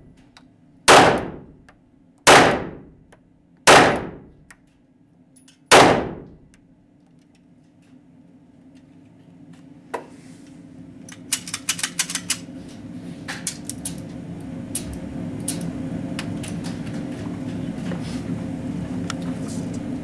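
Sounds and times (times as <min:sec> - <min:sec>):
steady low hum: 0:00.0 - 0:20.0
pistol metallic clicks and clacks: 0:11.1 - 0:12.4.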